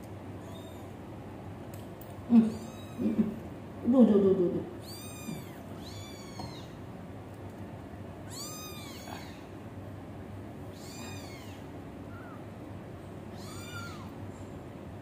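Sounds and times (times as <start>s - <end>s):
kitten chirp: 0.4s - 0.9s, 2.5s - 3.1s, 4.8s - 6.8s, 8.3s - 9.5s, 10.7s - 12.4s, 13.3s - 14.1s
kitten meowing: 0.4s - 0.9s, 2.5s - 3.1s, 4.8s - 6.8s, 8.3s - 9.5s, 10.7s - 12.4s, 13.3s - 14.1s.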